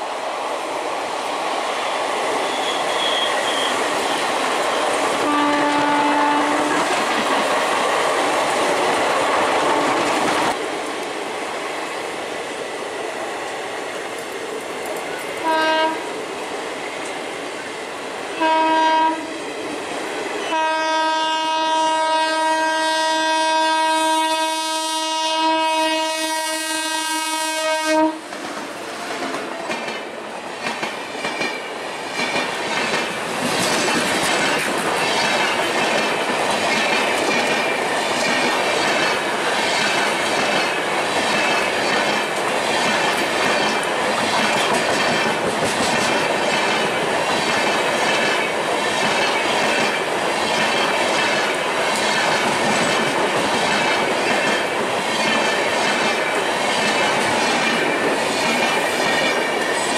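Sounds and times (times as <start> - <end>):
locomotive horn blast: 5.2 - 6.9, 15.4 - 16.0, 18.4 - 19.4, 20.5 - 28.3
train wheels clattering over rail joints: 28.4 - 59.9.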